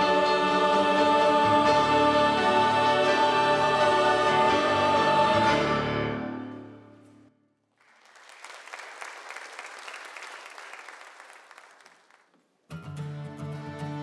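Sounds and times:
choir and orchestra chord: 0:00.0 - 0:07.2
congregation applauding: 0:07.7 - 0:12.4.

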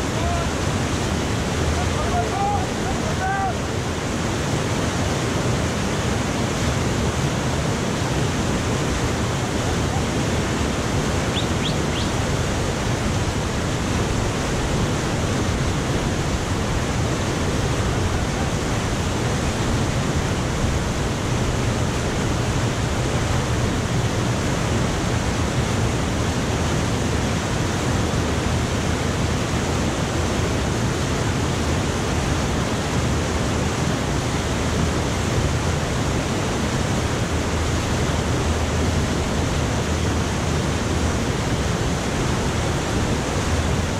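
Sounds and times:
river rapids rushing: 0:00.0 - 0:43.9.

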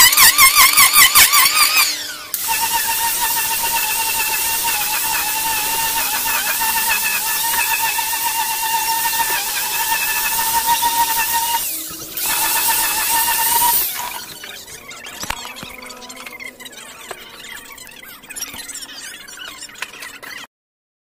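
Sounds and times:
angle grinder sanding wood: 0:00.0 - 0:18.6.

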